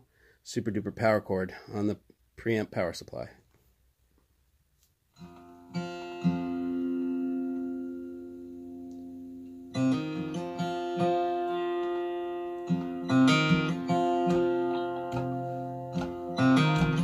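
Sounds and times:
acoustic guitar music over loudspeakers: 5.3s - 8.2s, 9.8s - 17.0s.

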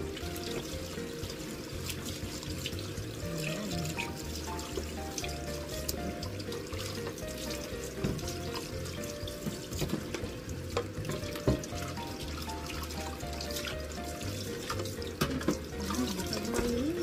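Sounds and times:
background music with bass: 0.0s - 17.0s
tap water running into sink: 0.0s - 17.0s
utensils clattering in sink: 6.8s - 16.9s.

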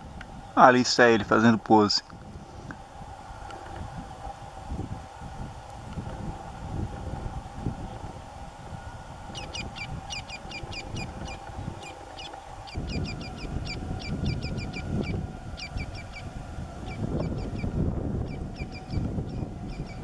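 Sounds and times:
woodpecker calling: 9.3s - 16.2s.

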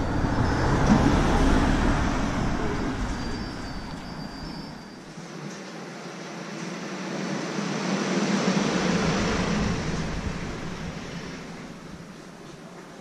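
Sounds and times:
vehicle passing by: 0.0s - 12.6s.

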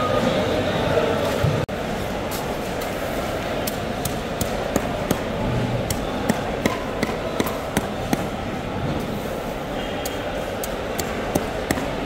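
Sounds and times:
market hall background noise: 0.0s - 12.0s.

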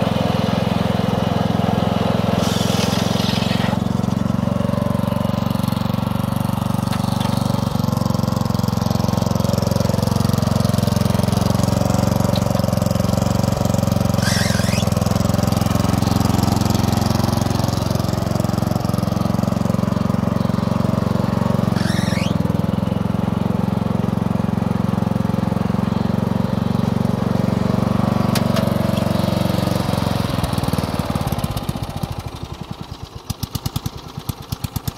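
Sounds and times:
riding lawn mower engine: 0.0s - 34.9s
short high squeals: 2.4s - 3.9s, 14.0s - 15.4s, 21.6s - 22.6s.

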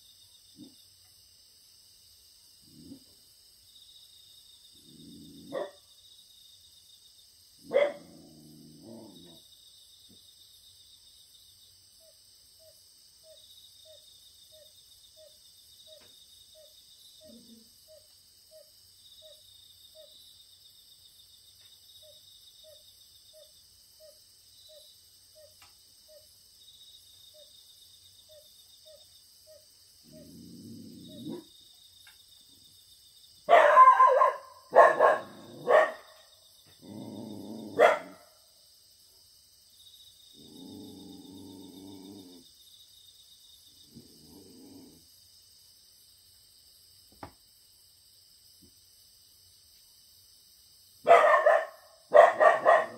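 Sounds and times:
crickets and insects chirping: 0.0s - 52.9s
puppy barking: 5.5s - 5.8s, 7.6s - 8.1s, 33.5s - 36.2s, 37.7s - 38.3s, 51.0s - 52.9s.

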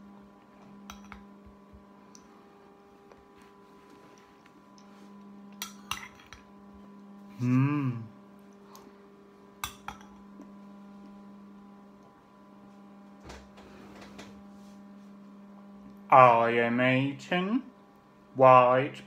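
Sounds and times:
low electrical hum: 0.0s - 19.0s
person humming mmm: 7.2s - 8.2s.

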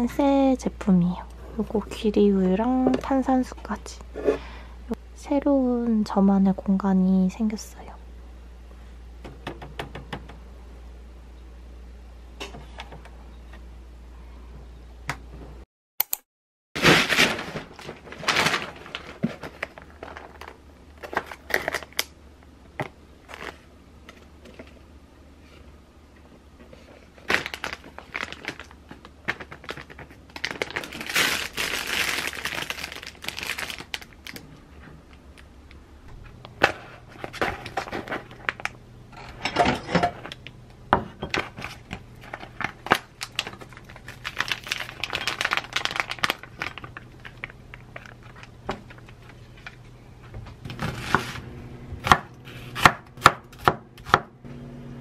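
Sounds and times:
plastic packaging crinkling: 16.8s - 22.2s, 23.2s - 23.7s, 27.1s - 34.5s, 37.1s - 38.8s, 41.3s - 49.8s.

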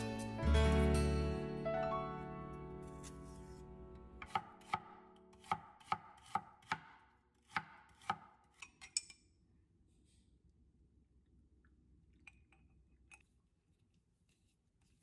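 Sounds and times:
knife chopping on wooden board: 4.2s - 8.4s.

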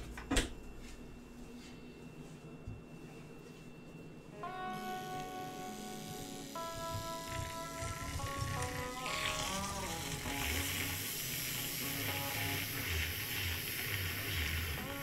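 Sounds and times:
background music with held notes: 4.2s - 15.0s
milk frother whirring: 4.8s - 15.0s.

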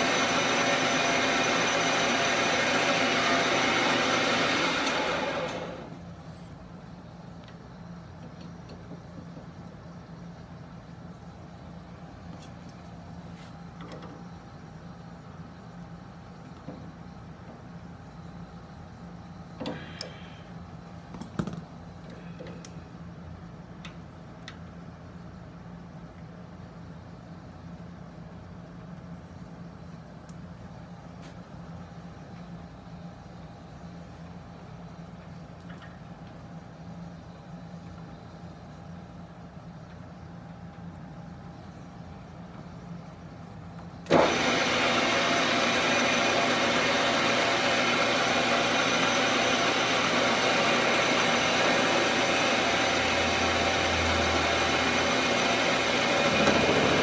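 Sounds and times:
metal lathe running: 0.0s - 6.0s, 44.1s - 57.0s
steady background hum: 0.0s - 57.0s.

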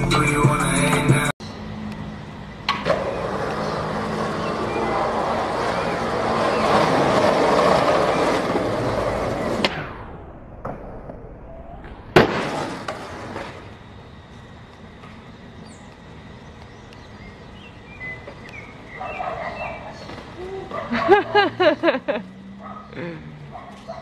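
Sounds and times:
skateboard wheels rolling on asphalt: 1.6s - 24.0s
skateboard clack: 2.6s - 10.0s, 12.1s - 13.7s
skateboard landing smack: 9.5s - 11.2s, 12.1s - 13.6s.

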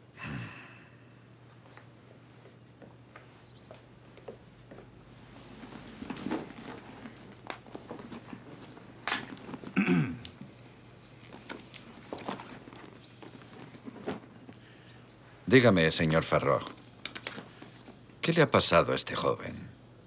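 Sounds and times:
cloth rustling: 4.2s - 18.1s.

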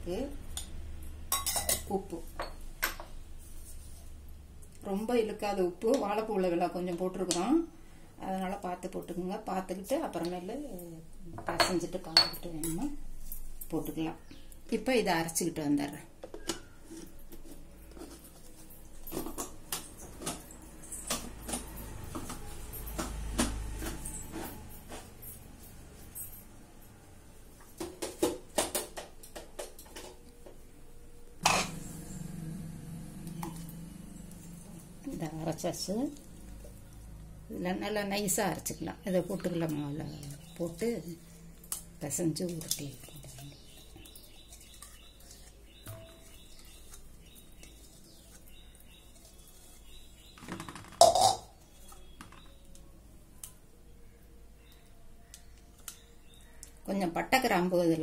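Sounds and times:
jar clattering against steel bowl: 50.5s - 51.6s.

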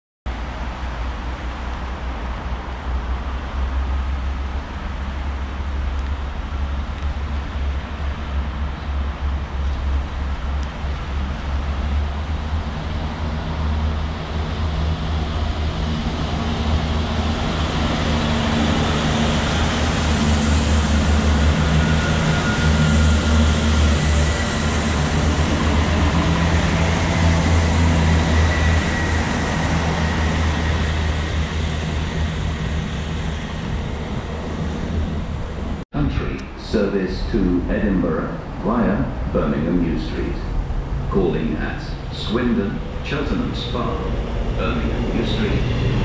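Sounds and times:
diesel train engine throbbing: 0.3s - 46.0s
train wheels on rails: 0.6s - 35.8s.

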